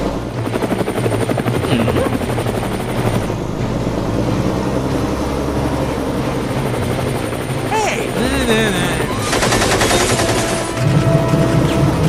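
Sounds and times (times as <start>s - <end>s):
helicopter rotor beat: 0.0s - 12.0s
low engine drone: 0.0s - 12.0s.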